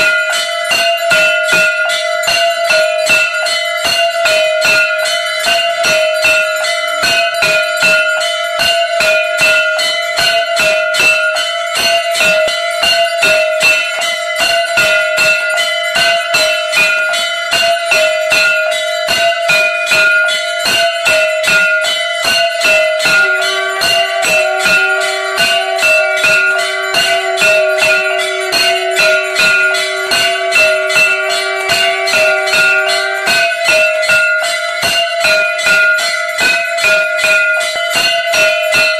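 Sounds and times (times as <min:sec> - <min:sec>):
bells and gong ringing rapidly: 0:00.0 - 0:38.9
low steady tone: 0:22.8 - 0:34.6.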